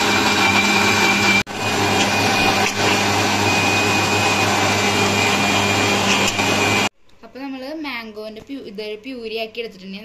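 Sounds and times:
mixer grinder motor whining: 0:00.0 - 0:06.9.

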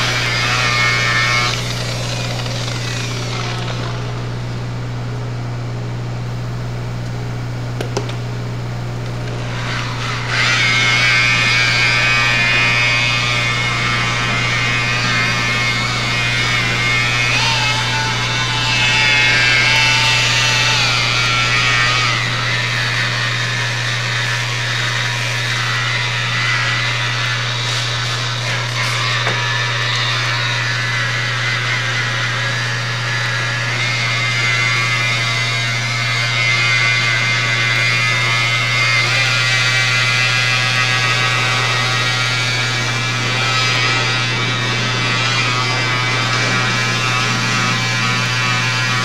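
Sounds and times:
steady low hum: 0:00.0 - 0:28.4
rotary polisher whining: 0:00.0 - 0:49.0.

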